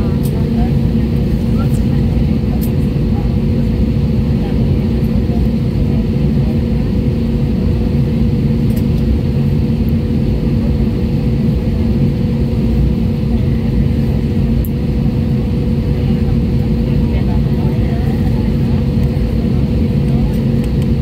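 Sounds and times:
aircraft cabin engine drone: 0.0s - 21.0s.

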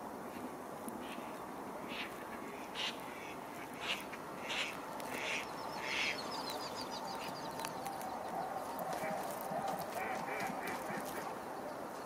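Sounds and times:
steady background hiss: 0.0s - 12.0s
ducks quacking: 2.7s - 6.2s, 8.9s - 11.3s.

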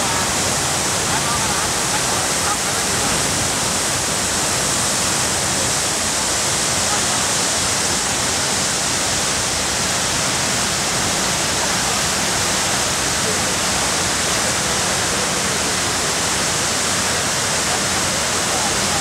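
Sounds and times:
waterfall rushing into pool: 0.0s - 19.0s.

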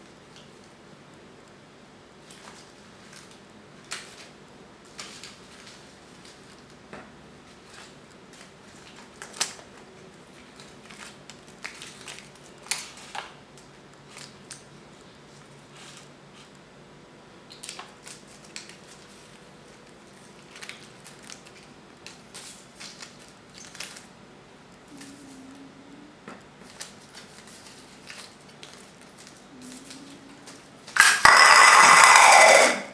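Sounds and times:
kittens playing on tiled floor: 0.0s - 31.5s
paper receipt rustling: 17.6s - 24.2s, 26.6s - 31.0s.

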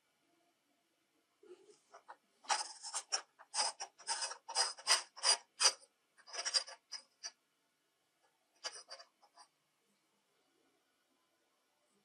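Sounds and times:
metal threads grating: 2.0s - 7.3s, 8.6s - 9.4s.

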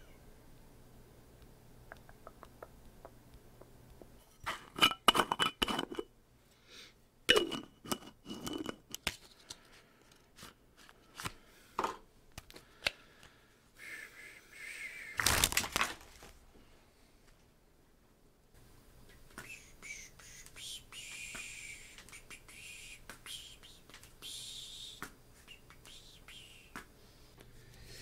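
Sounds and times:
material crackling and crinkling: 15.2s - 16.5s.

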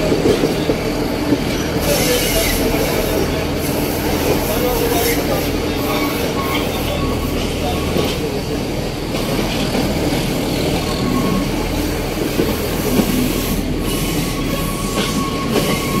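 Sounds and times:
train wheels rumbling on rails: 0.0s - 16.0s
faint wheel squeal: 13.8s - 16.0s.

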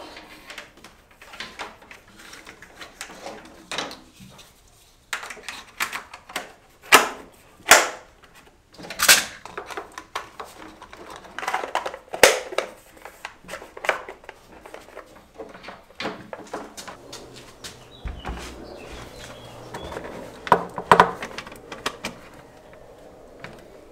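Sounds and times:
plastic covers snapping on: 8.8s - 17.6s
scraping rustles: 9.4s - 23.9s.

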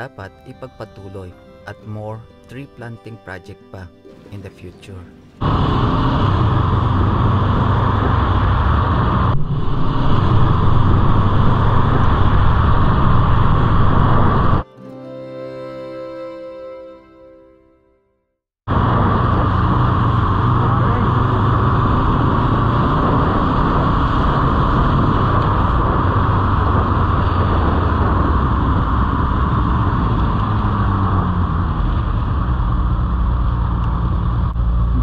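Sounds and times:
wind and road noise: 5.2s - 14.6s, 18.7s - 35.0s
motorcycle engine running: 5.4s - 14.6s, 18.7s - 35.0s.

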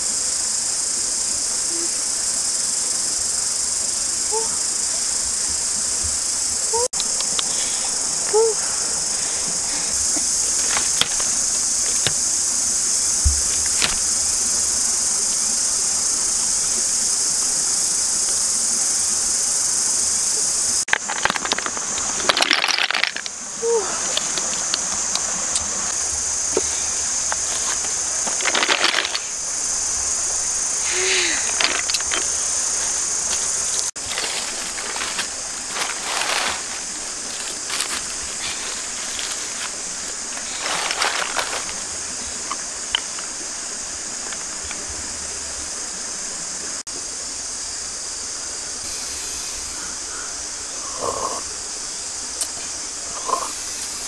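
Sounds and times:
high-pitched insect drone: 0.0s - 54.0s
rustling: 24.1s - 29.4s, 30.9s - 42.5s.

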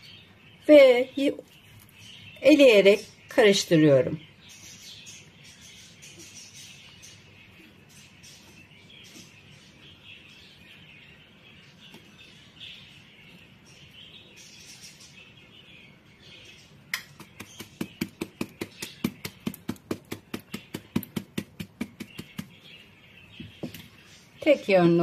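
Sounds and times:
tapping plastic sieve: 17.0s - 22.6s.

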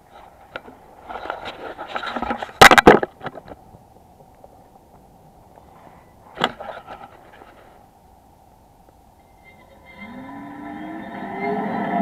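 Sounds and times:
rustling and scraping: 0.0s - 7.9s.

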